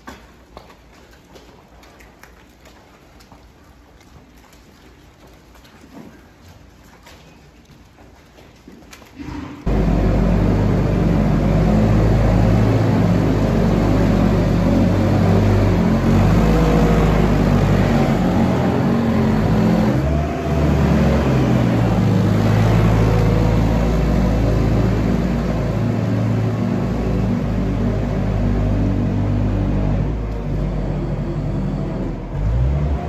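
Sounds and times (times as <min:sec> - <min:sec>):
diesel engine running: 0:09.7 - 0:33.0.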